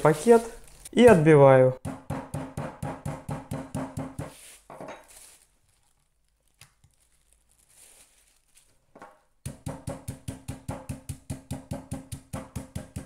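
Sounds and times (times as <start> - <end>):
plastic bag crinkling: 0.0 - 1.0, 5.1 - 8.9
meat mallet pounding on board: 1.8 - 4.3, 9.4 - 13.0.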